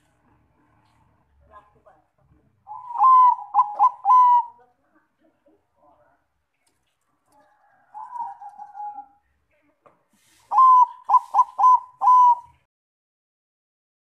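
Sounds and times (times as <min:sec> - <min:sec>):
dove cooing: 0:02.6 - 0:04.6, 0:07.4 - 0:09.2, 0:10.4 - 0:12.7.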